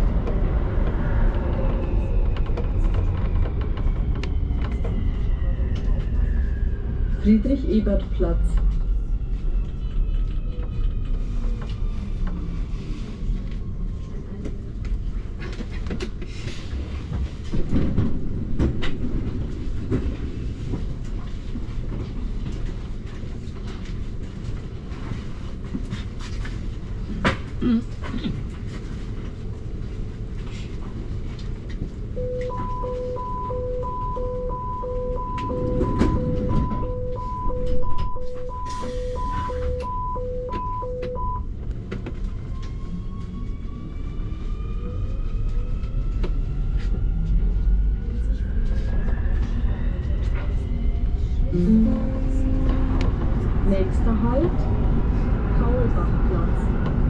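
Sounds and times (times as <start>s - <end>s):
train low rumble: 0.0s - 57.0s
two-tone door warning beeps: 32.2s - 41.5s.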